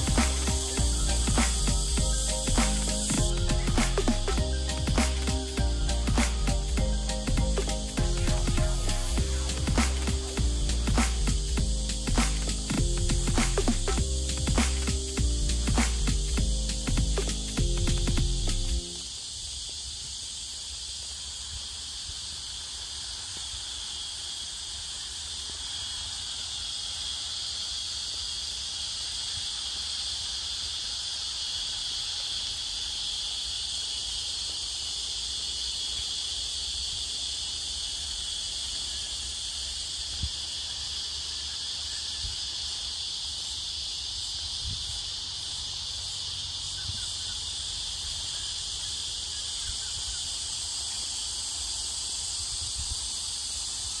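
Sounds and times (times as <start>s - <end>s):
cicadas buzzing: 0.0s - 54.0s
low rumble: 5.6s - 18.8s.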